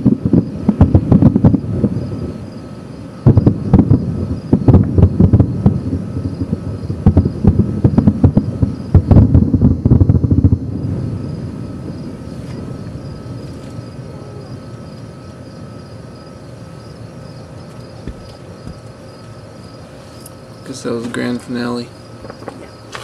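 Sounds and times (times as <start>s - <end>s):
low rolling echo: 0.0s - 17.2s
distant fireworks bursts: 0.0s - 23.0s.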